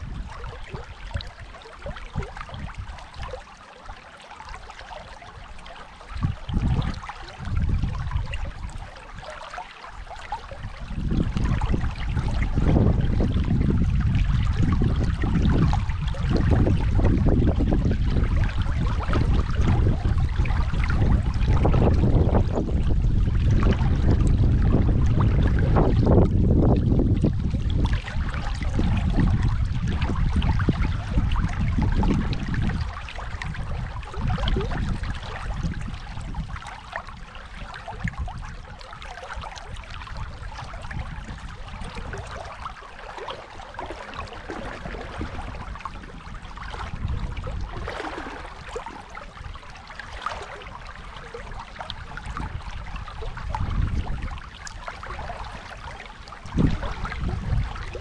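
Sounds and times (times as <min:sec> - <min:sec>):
river water rushing: 0:47.8 - 0:51.6.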